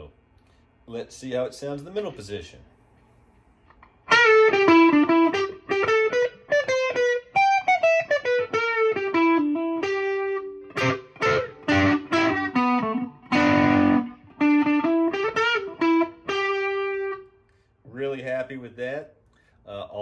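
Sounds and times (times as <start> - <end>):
distorted electric guitar notes: 4.1 - 17.2.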